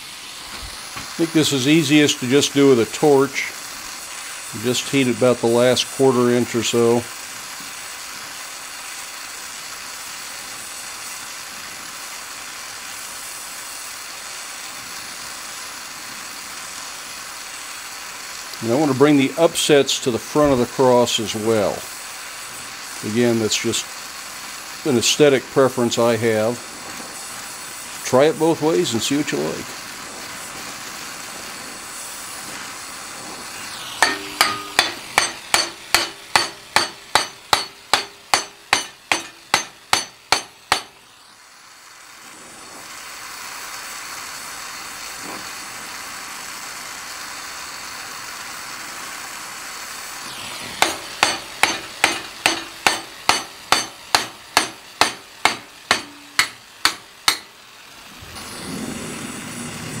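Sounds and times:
torch hissing: 0.0 - 60.0
hammer blows on steel: 34.0 - 41.0, 50.4 - 57.6.

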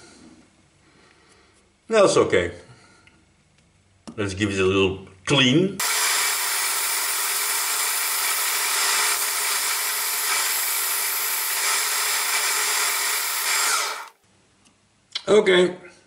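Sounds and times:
metal lathe running: 5.8 - 14.2.

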